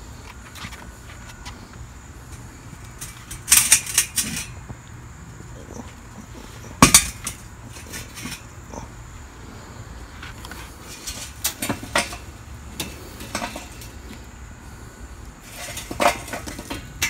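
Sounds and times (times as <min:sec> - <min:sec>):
metal chimney starter clattering: 0:02.3 - 0:04.6, 0:06.6 - 0:08.6, 0:10.9 - 0:14.1, 0:15.4 - 0:17.0.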